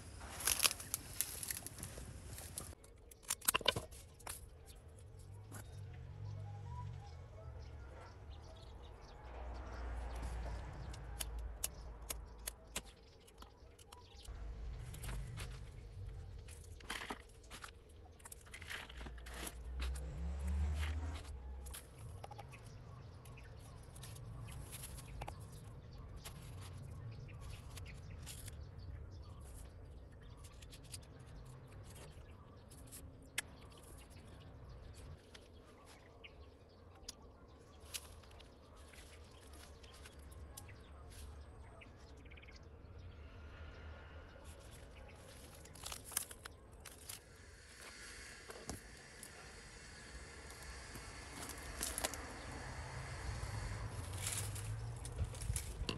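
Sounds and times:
low rumble: 0:05.1 - 0:12.6, 0:14.3 - 0:17.6, 0:47.2 - 0:55.9.

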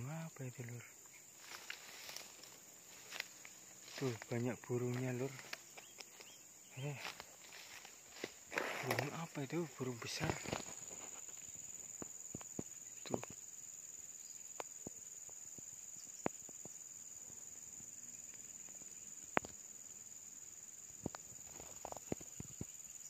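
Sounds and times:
insects shrill chorus: 0:00.0 - 0:23.0
faint clicks: 0:05.0 - 0:06.3.

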